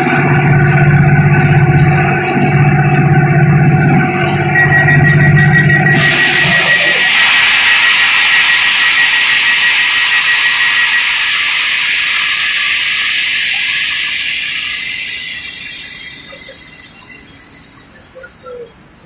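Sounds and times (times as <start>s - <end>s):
air compressor hiss: 3.6s - 4.5s, 5.9s - 19.0s
thin whistle: 3.6s - 18.8s.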